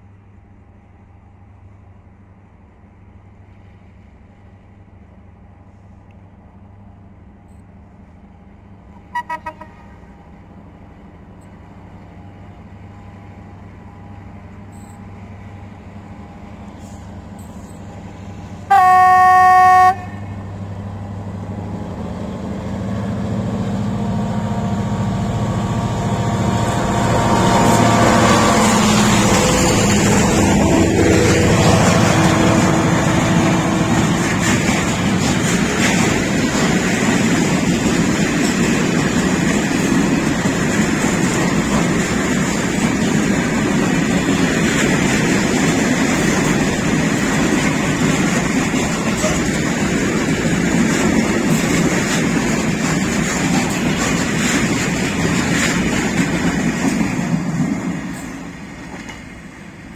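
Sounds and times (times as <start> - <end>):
diesel locomotive engine hum: 0.0 - 59.9
train wheels on rails: 0.0 - 59.9
train horn blast: 9.1 - 10.0, 18.7 - 20.5.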